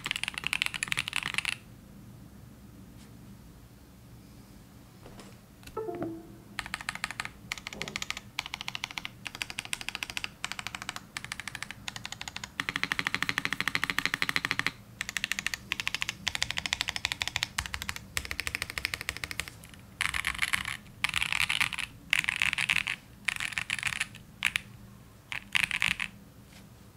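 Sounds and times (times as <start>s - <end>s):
mechanical keyboard typing: 0.0s - 1.6s, 6.6s - 24.7s, 25.3s - 26.2s.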